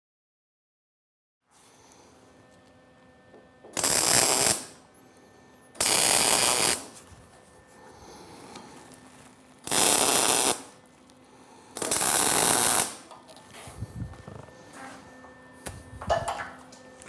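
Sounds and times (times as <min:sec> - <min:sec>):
welder arc bursts: 0:03.8 - 0:04.8, 0:05.8 - 0:07.0, 0:09.6 - 0:10.8, 0:11.7 - 0:13.1.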